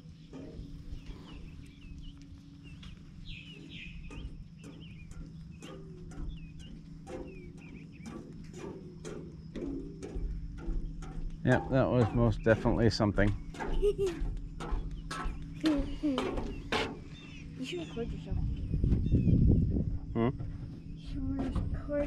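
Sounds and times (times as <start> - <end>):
footsteps on wooden planks: 0.0 - 21.8
small birds chirping: 0.0 - 22.0.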